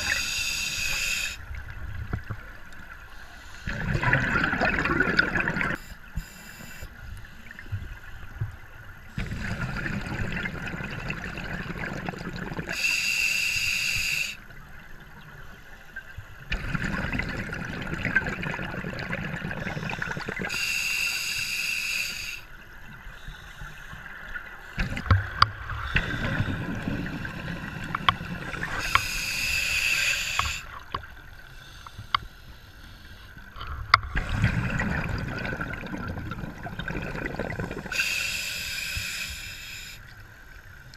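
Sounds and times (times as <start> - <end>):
high hiss: 0.0 - 1.4, 12.7 - 14.4, 20.5 - 22.5, 28.6 - 30.8, 37.9 - 40.0
bubbling regulator breaths: 3.4 - 7.0, 9.2 - 14.4, 16.5 - 22.5, 24.8 - 30.9, 31.7 - 40.0.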